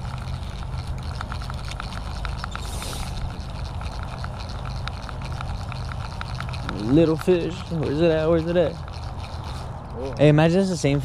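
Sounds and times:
light irregular clicking: 0.0s - 11.0s
low mechanical hum: 0.0s - 11.0s
short hiss: 2.6s - 3.1s.

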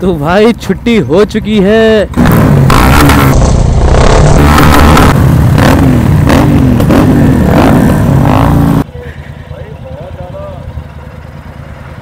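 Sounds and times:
motorcycle engine revving: 2.0s - 8.9s.

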